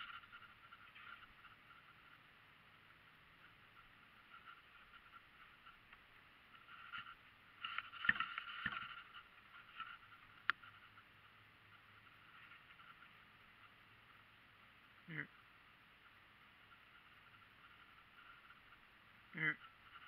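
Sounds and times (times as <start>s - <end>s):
rustling and scraping: 0.0s - 2.2s, 3.4s - 13.8s
low steady hiss: 0.0s - 20.0s.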